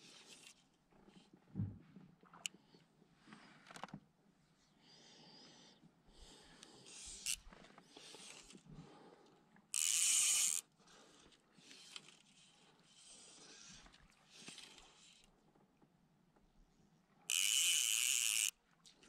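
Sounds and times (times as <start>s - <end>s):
fly reel ratchet clicking: 6.9s - 7.4s, 9.8s - 10.6s, 17.3s - 18.5s.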